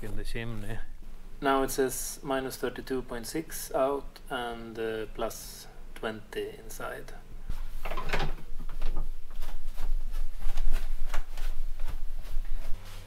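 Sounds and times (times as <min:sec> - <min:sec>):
low steady hum: 0:00.0 - 0:13.0
footsteps: 0:07.5 - 0:13.0.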